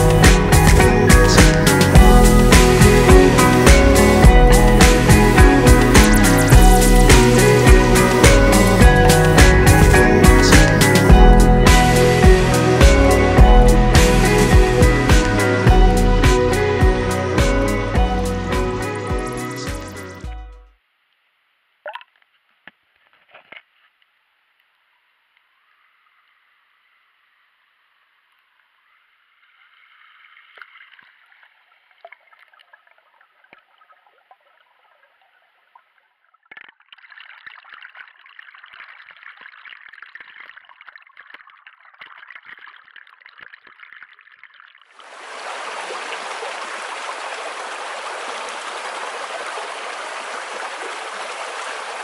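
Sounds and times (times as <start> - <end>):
stream flowing over stones: 30.0 - 52.0
clicks underwater: 32.0 - 44.9.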